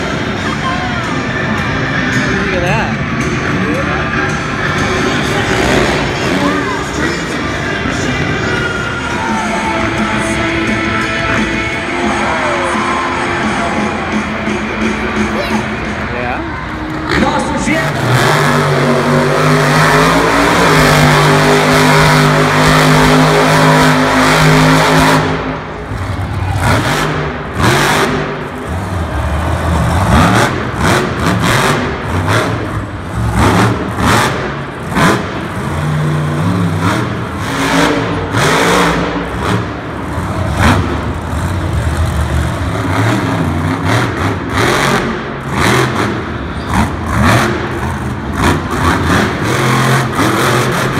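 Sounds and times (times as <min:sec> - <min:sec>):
loud truck engines revving: 0:00.0 - 0:50.9.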